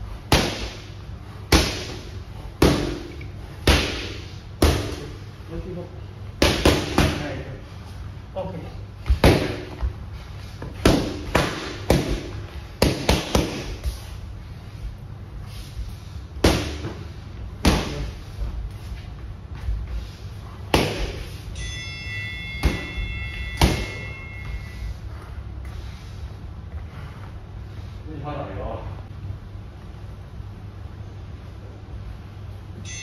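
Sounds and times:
boxing gloves hitting focus mitts: 1.5s - 5.2s, 9.0s - 9.9s, 10.6s - 13.8s, 16.4s - 18.2s, 20.7s - 21.2s, 23.6s - 24.1s.

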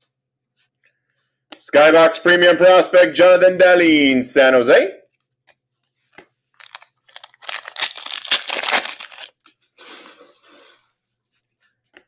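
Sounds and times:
trading cards rustling: 6.0s - 9.6s.

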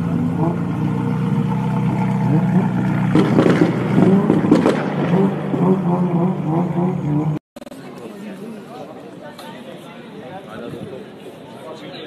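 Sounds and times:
car engine running low: 0.0s - 7.7s
crowd voices: 0.0s - 12.0s.

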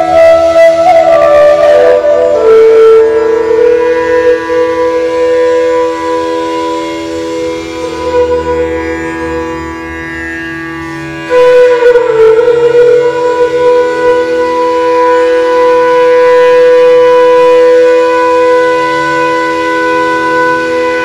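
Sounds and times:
steady lower drone tone: 0.0s - 9.9s
bamboo flute playing: 0.0s - 21.0s.

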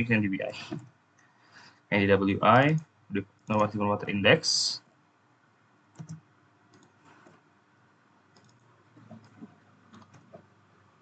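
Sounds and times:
faint keyboard keystrokes: 5.9s - 7.4s, 8.3s - 10.5s.

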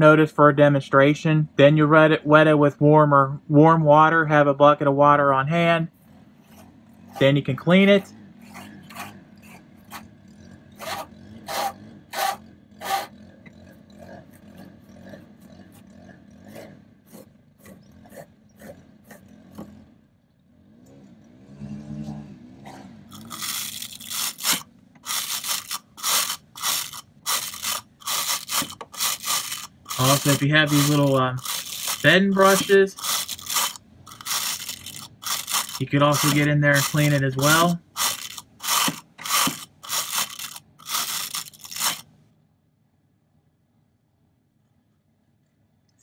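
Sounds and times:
brush scrubbing metal fins: 23.1s - 42.1s.

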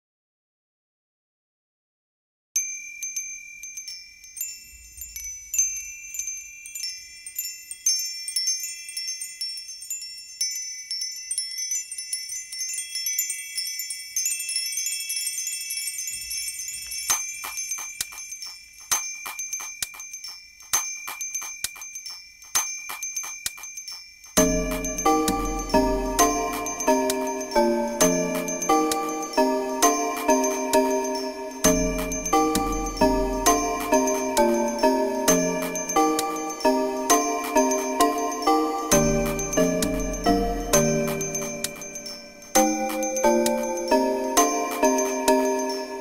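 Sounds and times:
ringing chime notes: 2.6s - 46.0s
music with low bass: 38.9s - 41.2s.

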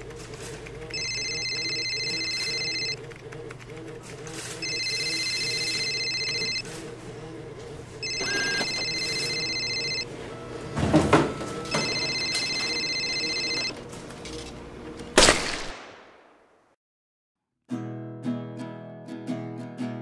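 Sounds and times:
electronic telephone ringing: 0.9s - 3.0s, 4.6s - 6.7s, 8.0s - 13.8s.

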